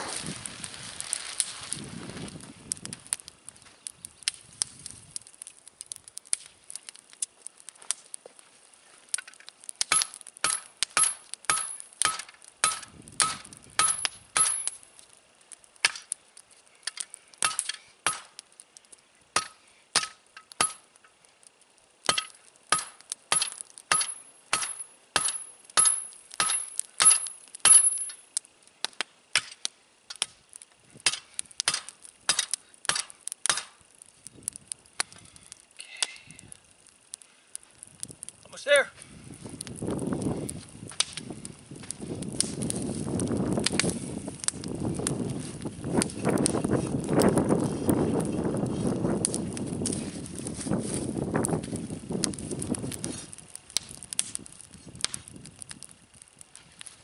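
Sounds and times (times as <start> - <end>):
hammer striking hot steel: 9.1 - 14.8, 15.8 - 16.1, 16.8 - 18.4, 19.3 - 20.9, 22.1 - 28.2, 28.9 - 30.3, 31.0 - 33.8.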